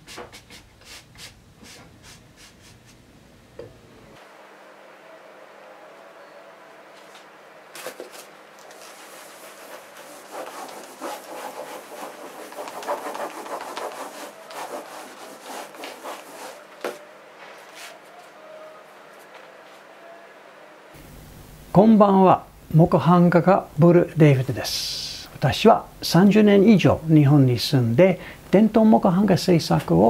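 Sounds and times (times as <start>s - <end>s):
baren rubbing on paper: 8.7s - 17.0s.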